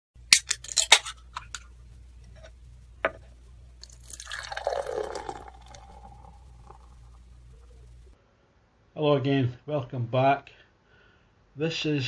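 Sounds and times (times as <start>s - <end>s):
beer pouring into a glass: 3.8s - 7.8s.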